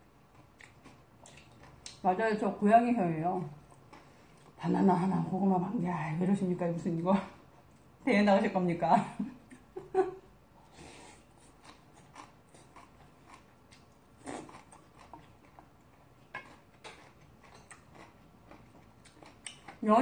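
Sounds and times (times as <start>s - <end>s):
chewing: 0.2s - 2.0s, 11.2s - 19.9s.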